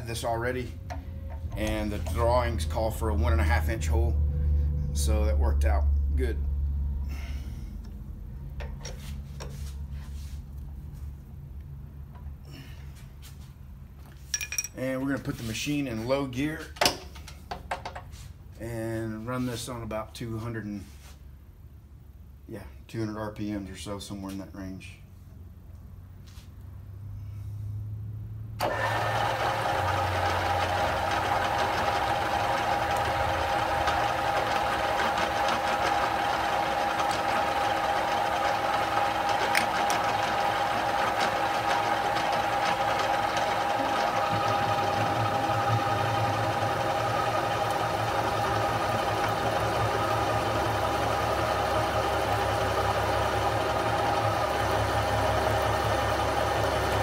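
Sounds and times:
drill press motor hum: 0.8 - 3.8, 28.6 - 57.0.

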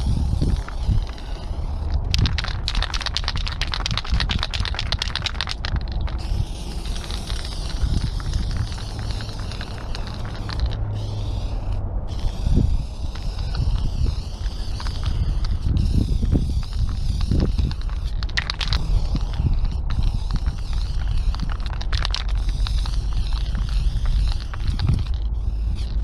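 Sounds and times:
sharp rattling clicks: 0.0 - 26.0
spray paint can hissing: 0.0 - 26.0
wind rumbling on microphone: 0.0 - 26.0.

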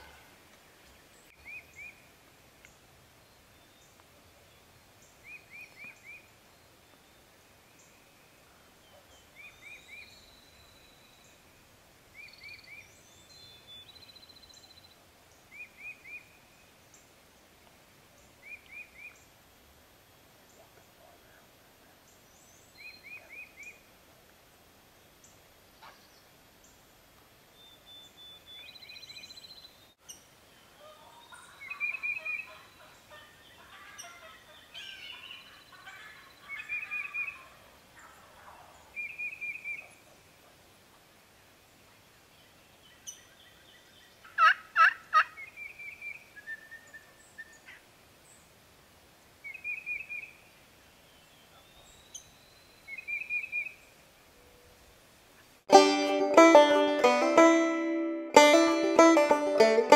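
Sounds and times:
faint outdoor hiss: 0.0 - 59.9
turkey gobbling: 44.3 - 45.4
songbird high notes: 55.7 - 59.9.

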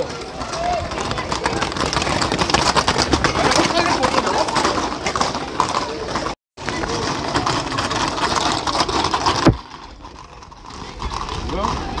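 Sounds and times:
crowd voices talking and shouting: 0.0 - 8.6.

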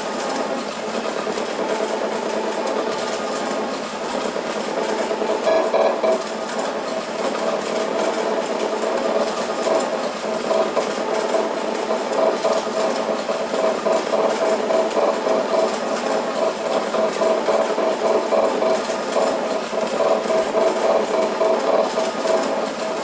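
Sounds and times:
electronic-mechanical drone: 4.0 - 23.0.

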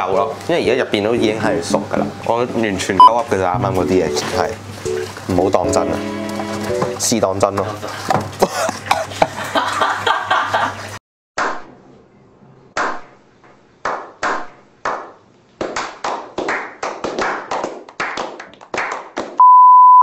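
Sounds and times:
background music: 3.5 - 7.1
group slow clapping: 13.8 - 19.4.

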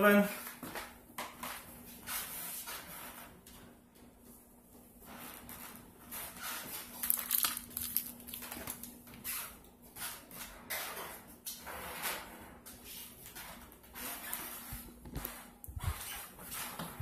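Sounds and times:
aluminium foil crinkling: 6.8 - 9.0.

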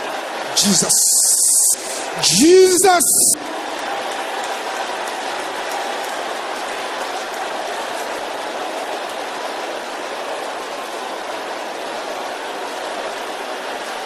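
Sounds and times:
congregation praying aloud: 0.0 - 5.9.

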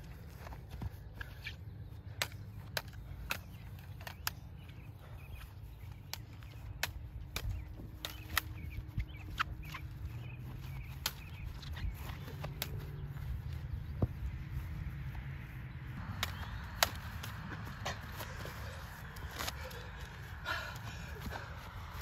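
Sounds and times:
plastic toy swords clacking: 2.2 - 4.6, 6.0 - 8.7
wind rumble on microphone: 6.5 - 22.0.

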